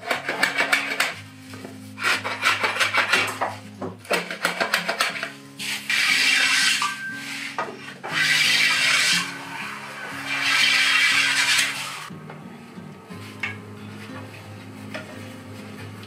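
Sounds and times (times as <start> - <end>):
scraping strokes on wood: 0.0 - 12.1
rubbing strokes along wood: 5.6 - 12.1.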